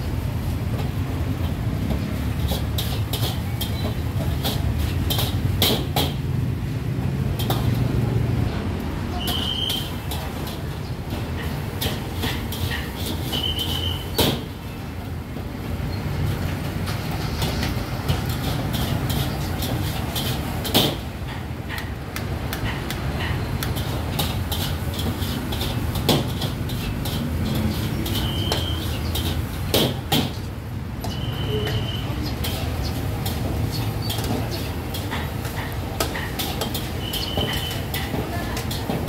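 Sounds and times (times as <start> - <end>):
low crowd rumble: 6.2 - 9.2.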